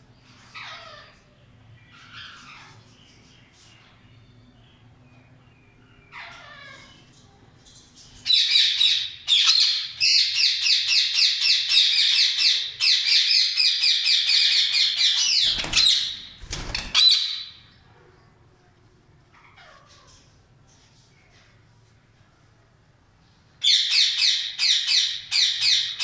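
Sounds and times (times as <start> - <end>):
parakeet screeching: 0.5 - 1.2, 6.1 - 7.0, 8.3 - 17.6.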